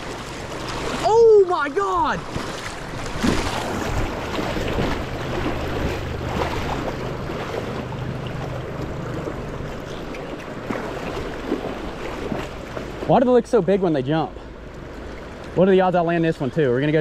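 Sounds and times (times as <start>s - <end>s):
low steady rumble: 0.0s - 17.0s
river water rushing and splashing: 0.0s - 17.0s.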